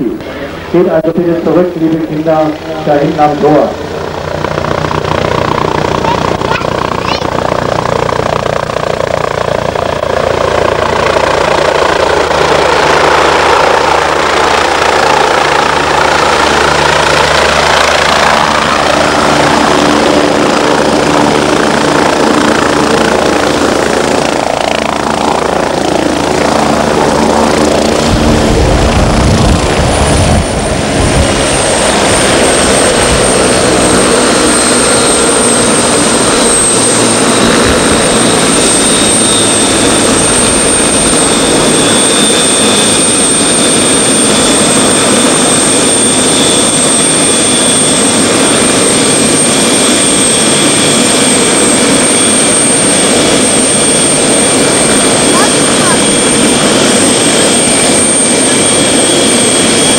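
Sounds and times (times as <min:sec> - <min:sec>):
helicopter rotor beating: 0:00.0 - 0:59.9
high turbine whine: 0:00.0 - 0:59.9
heavy deep rumble: 0:27.7 - 0:33.3.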